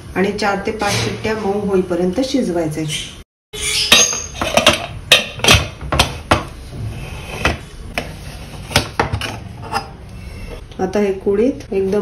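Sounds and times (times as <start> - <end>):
metal lid clanks and clicks: 3.9 - 6.4.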